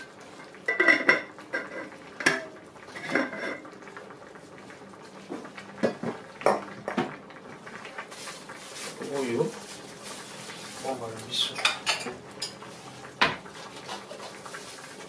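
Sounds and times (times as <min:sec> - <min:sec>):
metal utensils and pots clinking: 0:00.0 - 0:03.8, 0:08.2 - 0:15.0.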